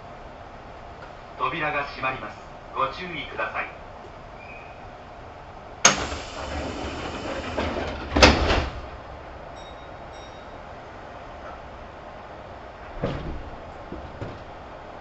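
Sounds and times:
train sliding doors closing: 5.8 - 15.0
doors banging shut: 5.9 - 9.0, 12.9 - 14.6.

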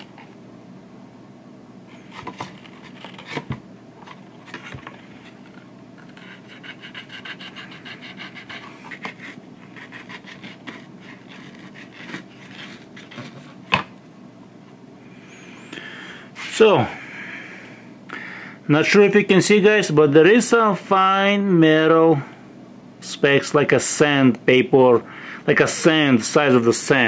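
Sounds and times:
razor blade scraping felt: 6.0 - 13.1.

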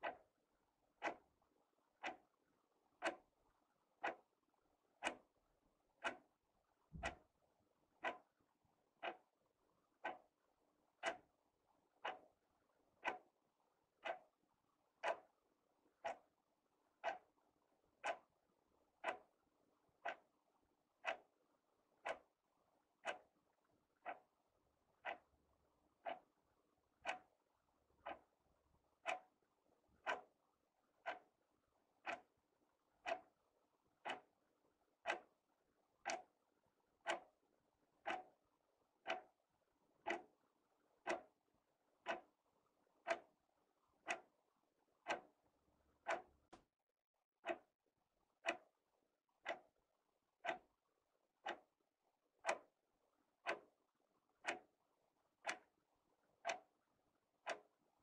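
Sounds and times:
wall clock ticking: 0.0 - 1.3, 1.9 - 3.4, 4.0 - 4.3, 4.9 - 9.4, 10.0 - 11.3, 11.9 - 13.4, 14.0 - 17.4, 18.0 - 19.4, 20.0 - 20.4, 21.0 - 21.4, 22.0 - 22.4, 23.0 - 23.4, 24.0 - 24.4, 25.0 - 25.4, 26.0 - 26.4, 27.0 - 28.4, 29.0 - 29.4, 30.0 - 30.4, 31.0 - 31.4, 32.0 - 32.4, 33.0 - 33.4, 34.0 - 34.4, 35.0 - 36.4, 37.0 - 37.4, 38.0 - 39.4, 40.0 - 42.4, 43.0 - 44.4, 45.0 - 46.6, 47.4 - 47.7, 48.4 - 48.7, 49.4 - 49.8, 50.4 - 50.7, 51.4 - 51.8, 52.4 - 52.8, 53.4 - 53.8, 54.4 - 57.8.

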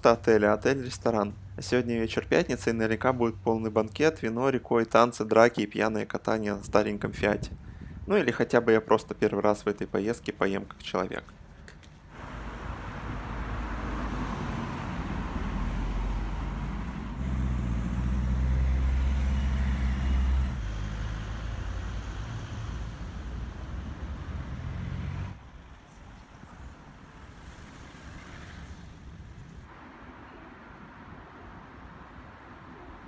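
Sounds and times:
vehicle engine rumbling: 12.0 - 29.7.

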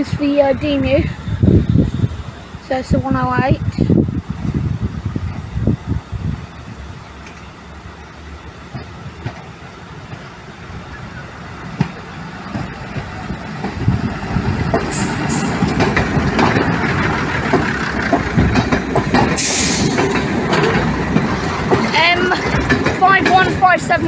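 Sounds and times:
diesel train engine: 0.0 - 24.0
train wheels clicking over rail joints: 6.6 - 24.0
short high hisses: 19.4 - 20.0.

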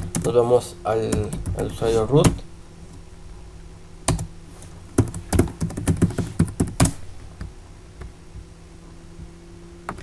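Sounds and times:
low steady hum: 0.0 - 10.0
computer keyboard typing: 5.0 - 7.0.

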